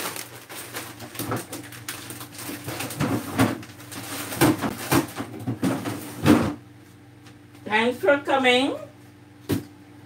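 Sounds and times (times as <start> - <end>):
packages rustling: 0.0 - 6.4.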